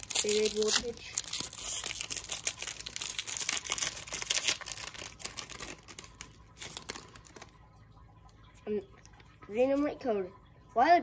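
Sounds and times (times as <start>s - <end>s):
foil wrapper crinkling and tearing: 0.0s - 7.6s.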